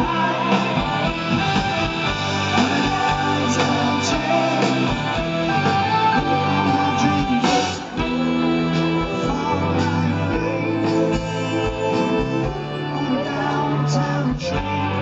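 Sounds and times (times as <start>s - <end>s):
electric guitar: 0.0s - 15.0s
live pop-rock band: 0.0s - 15.0s
man singing: 0.0s - 15.0s.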